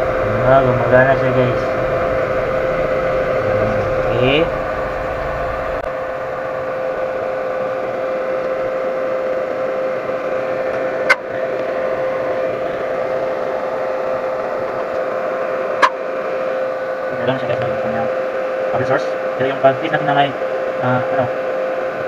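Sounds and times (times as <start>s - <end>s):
welding machine fan humming: 0.0s - 22.0s.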